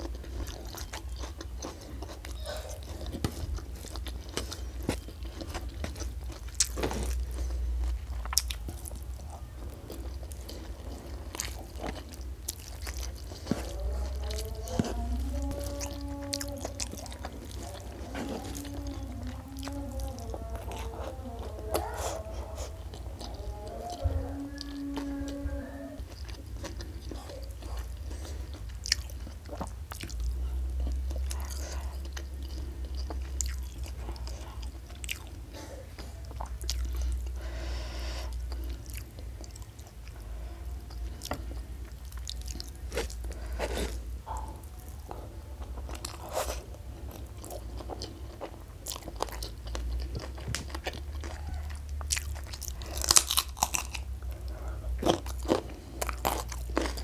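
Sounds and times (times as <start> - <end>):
chewing: 0.0 - 57.0
crisp crunchy bites: 45.8 - 57.0.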